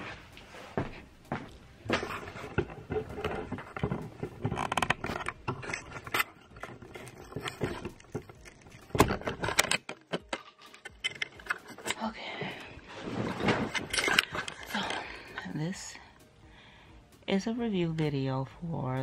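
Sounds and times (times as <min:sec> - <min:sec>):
scraping and rustling: 0:01.8 - 0:15.3.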